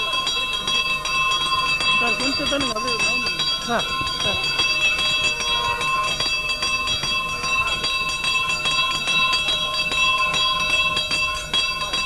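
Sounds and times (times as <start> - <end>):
bells ringing: 0.0 - 12.0.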